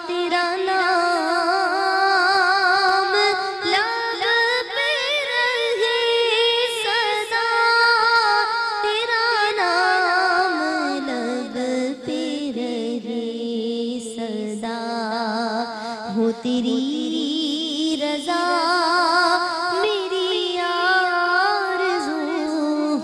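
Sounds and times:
woman singing slowly: 0:10.4 - 0:23.0.

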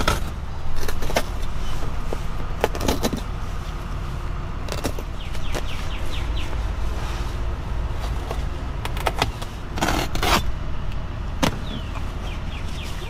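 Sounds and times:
steady low rumble: 0:00.0 - 0:13.0
rasping rip: 0:09.8 - 0:10.5.

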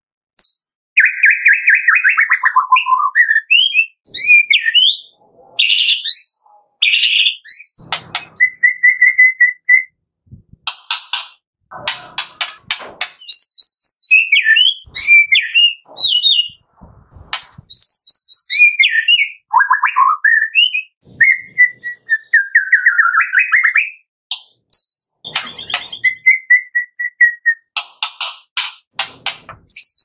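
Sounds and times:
bird singing whistled phrases: 0:00.4 - 0:09.9, 0:13.2 - 0:16.6, 0:17.6 - 0:24.0, 0:24.7 - 0:27.7, 0:29.7 - 0:30.0.

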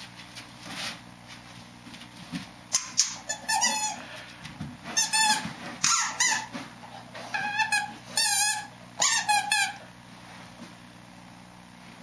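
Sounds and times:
squeaky dog toy squeaking: 0:02.7 - 0:04.0, 0:05.0 - 0:06.6, 0:07.2 - 0:09.8.

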